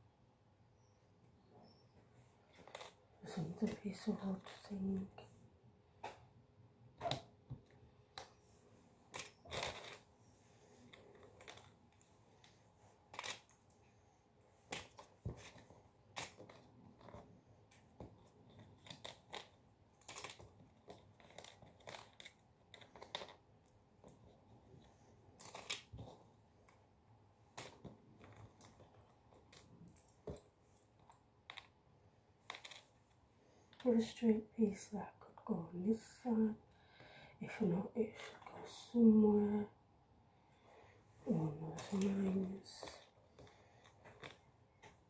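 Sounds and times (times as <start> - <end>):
puzzle pieces clicking and rustling: 18.5 - 23.4, 25.4 - 26.1, 32.4 - 33.0.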